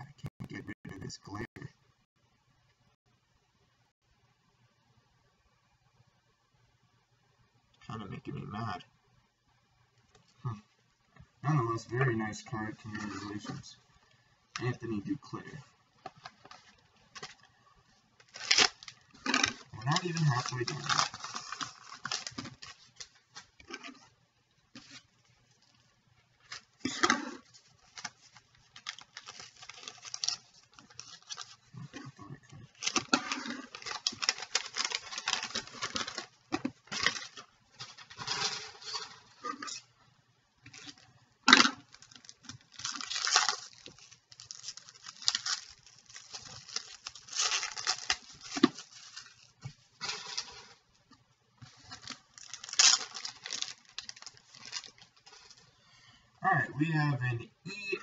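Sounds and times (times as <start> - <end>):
wrapper crinkling and tearing: 16.1 - 17.5, 18.2 - 24.1, 24.8 - 39.9, 40.7 - 50.9, 51.6 - 55.8.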